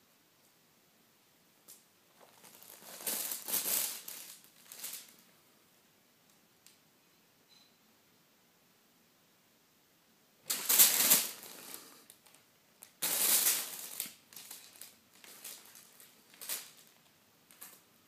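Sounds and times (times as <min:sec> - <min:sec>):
wrapping paper rustling and crinkling: 0:02.1 - 0:05.2, 0:10.5 - 0:17.8.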